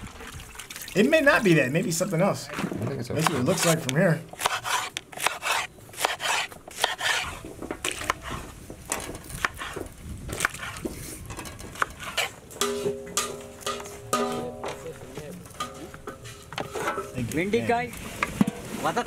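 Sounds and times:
knife slicing on wooden board: 3.2 - 8.5.

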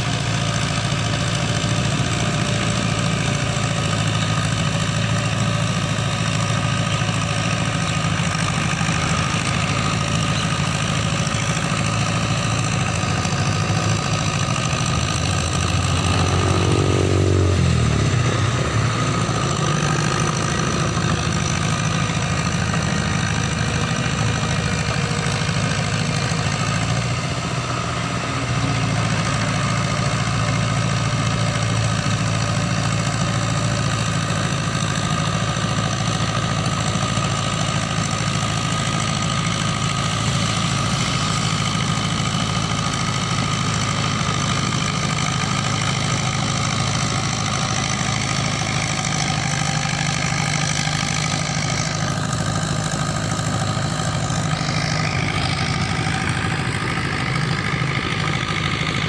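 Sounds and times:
tractor engine running under load: 0.0 - 59.0.

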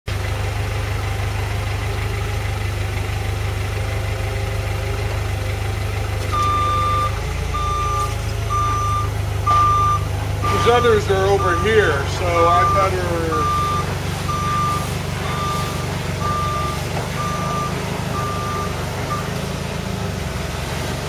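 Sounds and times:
forklift engine rumbling: 0.1 - 21.0
reversing alarm beeps: 6.3 - 19.4.

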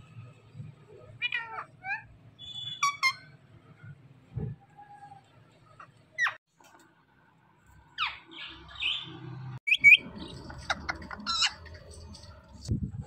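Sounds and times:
parakeets squawking and screeching: 1.1 - 3.4, 5.5 - 6.4, 8.0 - 12.7.

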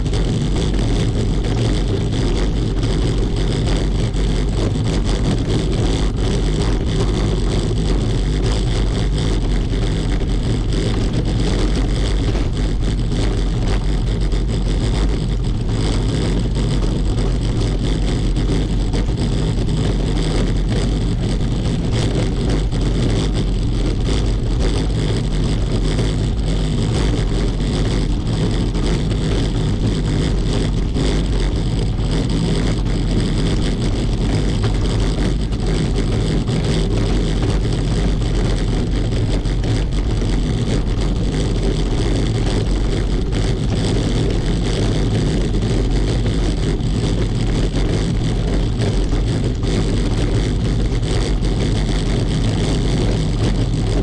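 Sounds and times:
bicycle rattling over cobblestones: 0.0 - 54.0.

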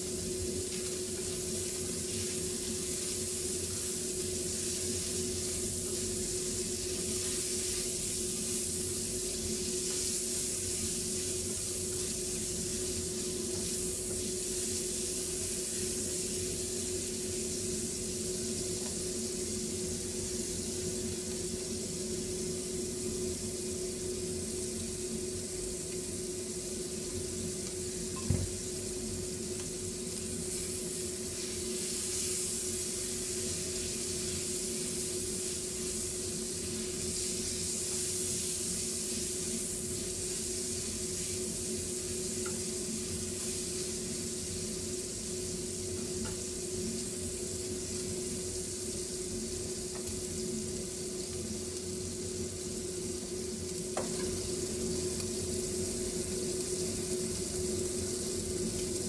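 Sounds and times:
oil sizzling: 0.0 - 59.0.

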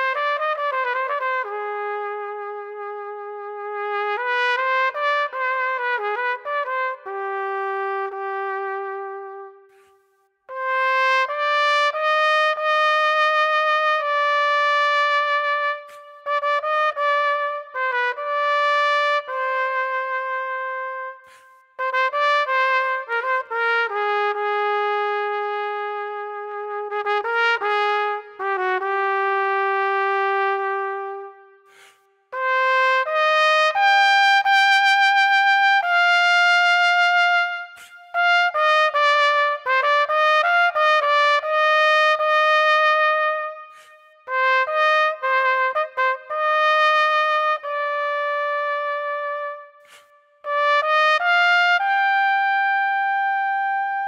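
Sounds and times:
solo trumpet melody: 0.0 - 54.0
player breathing: 9.7 - 10.3, 21.2 - 21.7, 31.6 - 32.3, 37.8 - 38.2, 43.7 - 44.1, 49.8 - 50.4.

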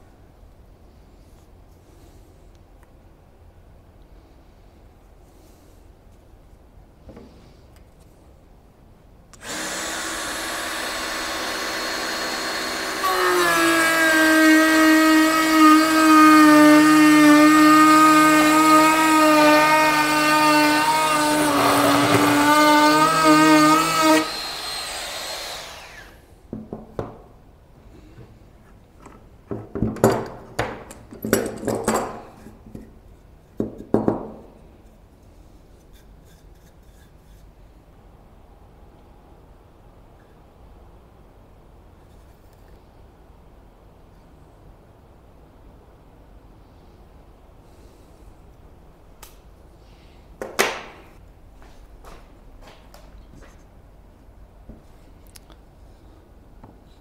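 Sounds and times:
electric router cutting wood: 9.4 - 26.2.

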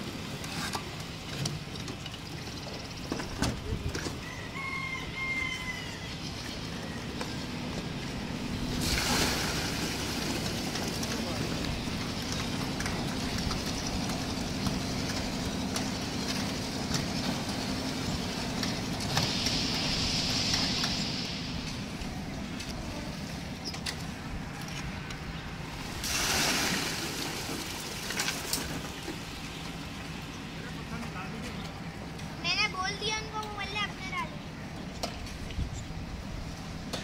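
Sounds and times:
concrete mixer engine running: 6.2 - 26.0
hissing rush: 17.1 - 23.7
short burst of noise: 19.0 - 22.9.

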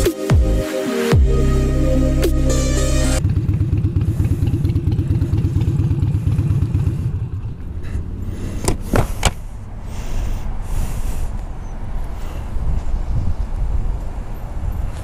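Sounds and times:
motorcycle engine pulsing: 3.0 - 8.9.

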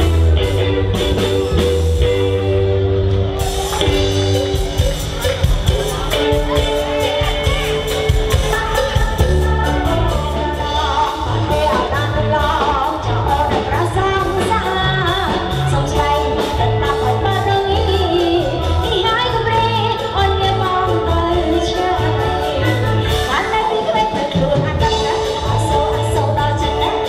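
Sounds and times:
pulsing bass: 0.0 - 23.3.

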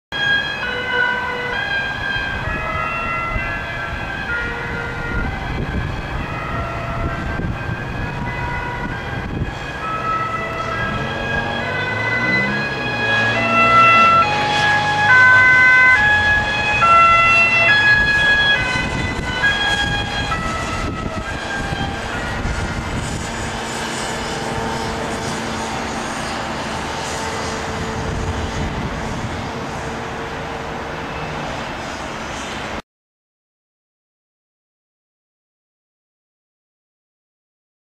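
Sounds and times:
ambulance siren: 0.1 - 32.6
road traffic rushing: 0.1 - 32.8.

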